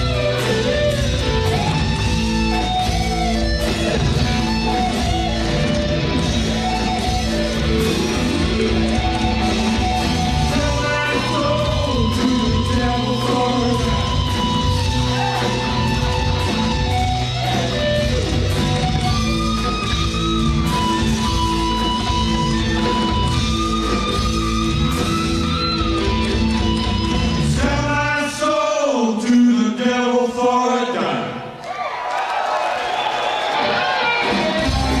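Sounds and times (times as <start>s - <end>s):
live blues-rock band playing: 0.0s - 28.1s, 33.6s - 35.0s
man speaking into a microphone: 29.2s - 31.5s.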